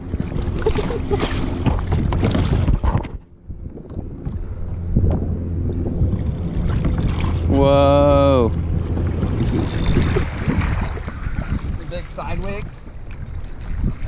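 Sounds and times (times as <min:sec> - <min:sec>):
water lapping against paddleboard: 0:00.0 - 0:14.0
wind buffeting microphone: 0:00.0 - 0:14.0.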